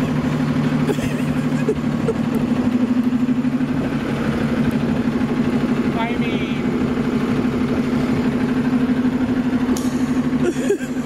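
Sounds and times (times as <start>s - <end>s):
bus engine idling: 0.0s - 11.0s.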